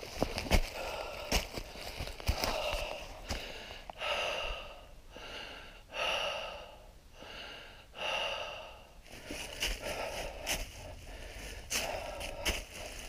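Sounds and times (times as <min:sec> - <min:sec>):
person breathing heavily: 0:00.2 - 0:13.0.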